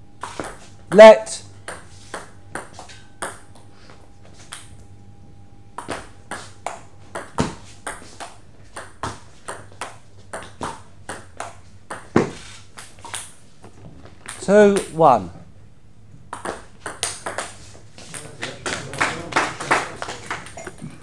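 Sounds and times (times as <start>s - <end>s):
table tennis ball hits: 0.2s - 1.1s, 1.7s - 3.4s, 5.8s - 13.3s, 16.3s - 21.0s.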